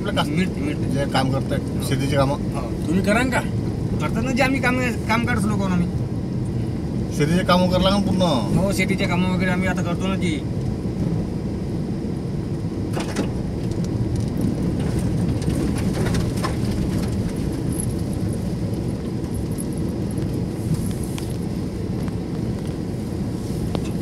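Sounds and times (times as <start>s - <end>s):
car engine and tyre rumble: 0.0s - 24.0s
knocks and rattles over bumps: 12.9s - 19.7s.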